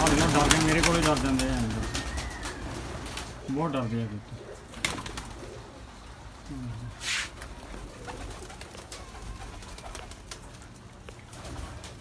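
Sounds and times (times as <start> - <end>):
pigeon cooing: 0.0 - 3.0
wings rustling: 0.0 - 3.6, 4.4 - 12.0.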